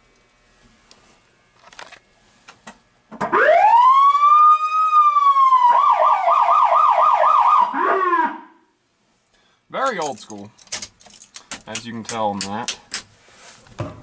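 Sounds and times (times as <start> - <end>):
siren wailing and yelping: 3.3 - 8.5.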